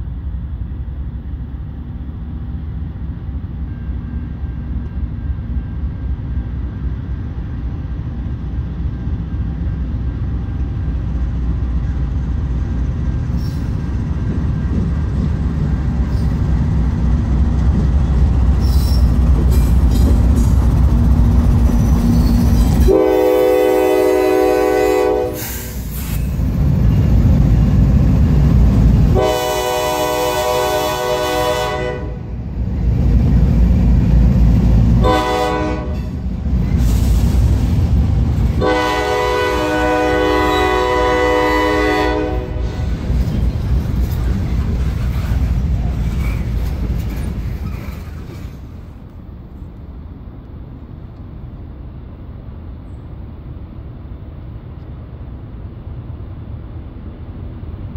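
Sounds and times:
train cars rolling past: 0:00.0 - 0:57.9
train engines rumbling: 0:00.0 - 0:57.9
locomotive horn blasts: 0:22.9 - 0:25.4, 0:29.2 - 0:32.3, 0:35.0 - 0:36.1, 0:38.6 - 0:42.8.

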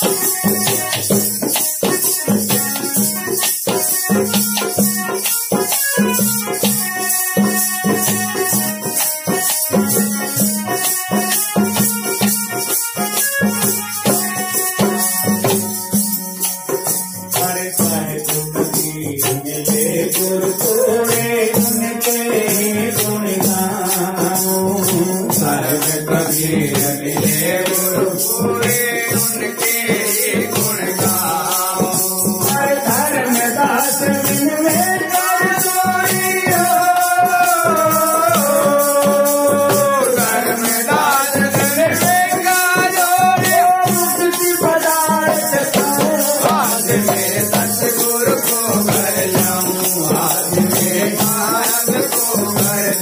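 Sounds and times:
man singing: 0:00.0 - 0:15.6, 0:16.7 - 0:53.0
hand rattles shaking: 0:15.8 - 0:53.0.

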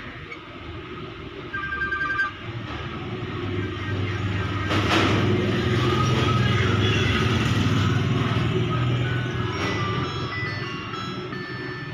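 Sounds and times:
phone ringtone beeps: 0:01.5 - 0:02.6, 0:09.0 - 0:11.9.

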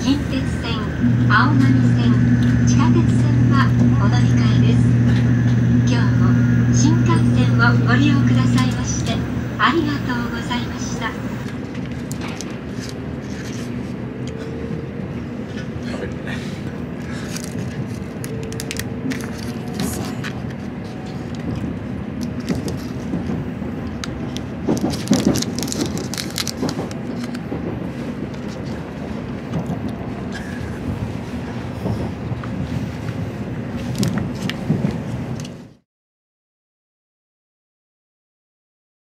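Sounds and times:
train cabin rumble: 0:00.0 - 0:35.8
plastic tray and paper cup crinkling: 0:24.9 - 0:27.3.

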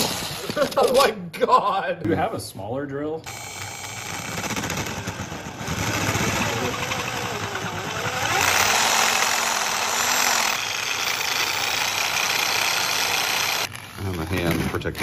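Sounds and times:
electric drill cutting metal: 0:03.3 - 0:13.8.

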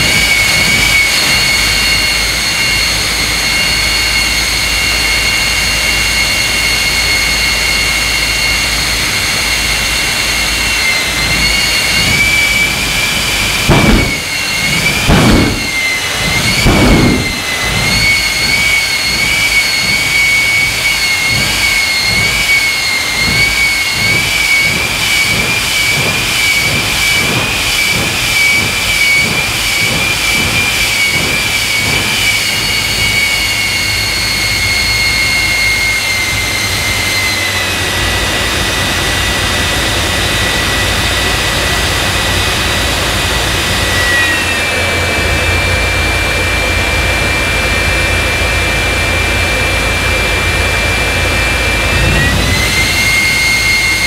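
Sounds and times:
jet engine turbine whine: 0:00.0 - 0:54.0
afterburner whooshing surges: 0:11.3 - 0:20.0, 0:51.4 - 0:54.0.

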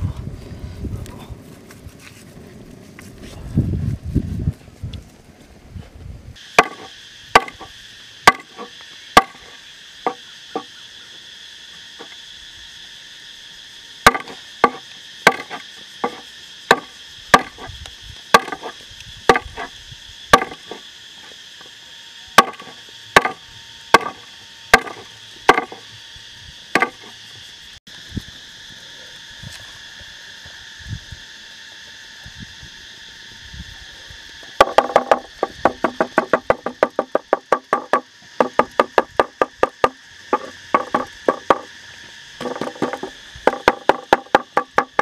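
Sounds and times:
insects buzzing: 0:00.0 - 0:45.0
cleaver chopping on wooden board: 0:06.6 - 0:09.4, 0:14.1 - 0:17.7, 0:18.3 - 0:18.7, 0:19.3 - 0:19.7, 0:20.3 - 0:20.8, 0:22.4 - 0:25.8, 0:26.8 - 0:27.1.

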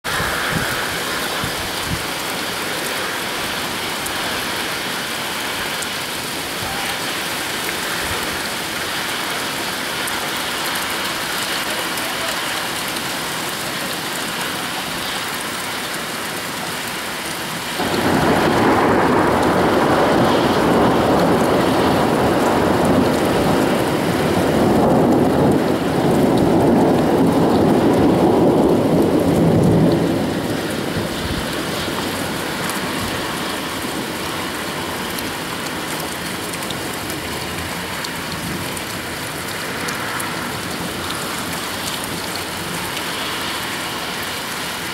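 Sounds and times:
steady rain falling: 0:00.0 - 0:44.9
thunder rumbling: 0:17.8 - 0:35.0.

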